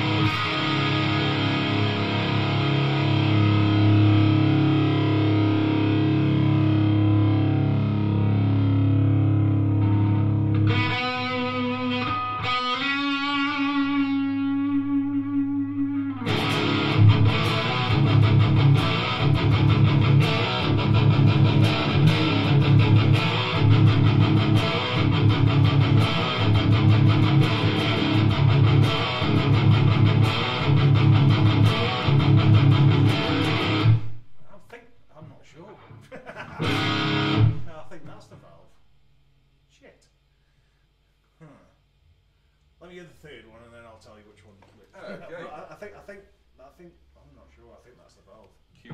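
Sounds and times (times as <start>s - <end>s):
overdriven electric guitar: 0.0s - 34.4s, 36.5s - 37.8s.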